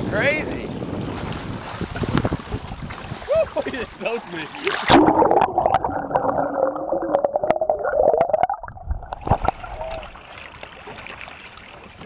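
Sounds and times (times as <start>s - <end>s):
choppy sea water hissing: 0.0s - 5.0s
wind: 0.0s - 5.4s, 8.6s - 12.0s
underwater gurgling: 4.5s - 12.0s.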